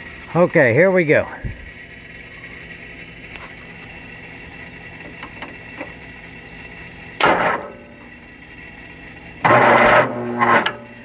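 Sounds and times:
faint steady hum: 0.0 - 11.0
starter motor grinding: 9.2 - 11.0.

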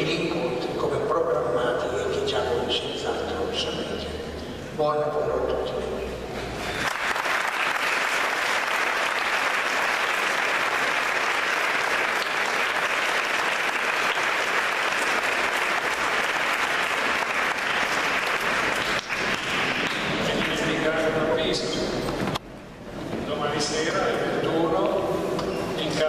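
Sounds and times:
congregation applauding: 6.7 - 21.4.

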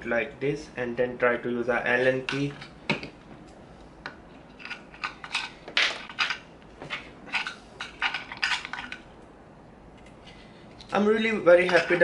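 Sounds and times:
small metal parts clicking and scraping: 4.4 - 9.0, 11.6 - 12.0.

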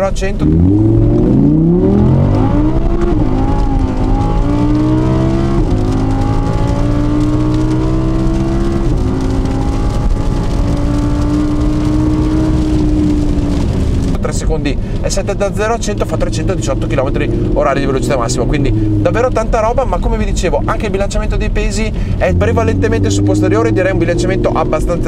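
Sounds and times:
car engine accelerating: 0.0 - 25.0.

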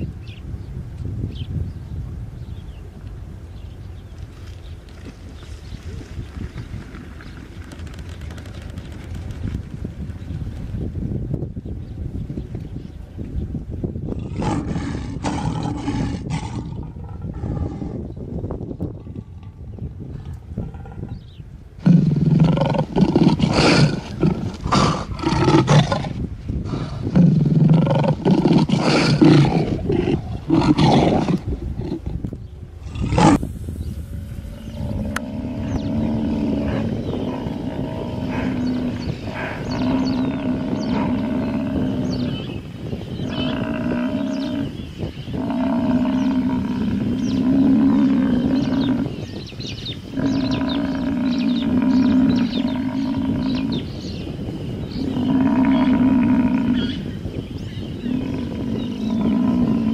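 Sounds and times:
lions growling and snarling: 14.1 - 18.2, 20.2 - 42.6, 43.2 - 54.1, 54.8 - 57.1, 57.9 - 59.9.

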